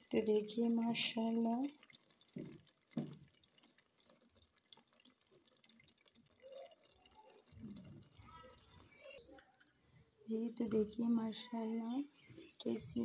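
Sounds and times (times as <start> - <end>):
curry bubbling in pot: 0.0 - 9.8.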